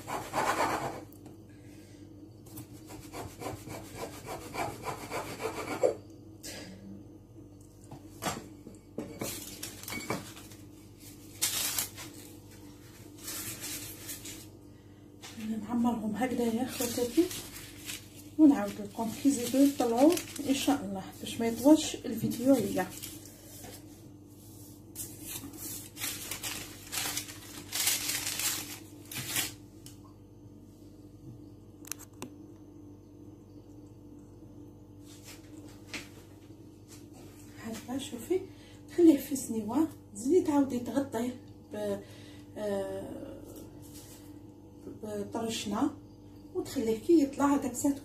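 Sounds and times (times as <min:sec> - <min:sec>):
dough rustling and scraping on counter: 0:00.0 - 0:01.1, 0:09.1 - 0:14.6, 0:15.2 - 0:29.6, 0:35.0 - 0:38.1, 0:43.5 - 0:44.4
faint steady hum: 0:00.0 - 0:48.0.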